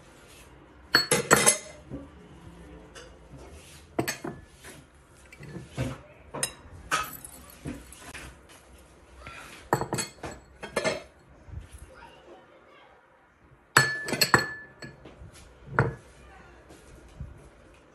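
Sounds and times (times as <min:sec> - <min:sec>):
metal spoon clinking on plate: 0:00.9 - 0:01.8, 0:13.8 - 0:15.0.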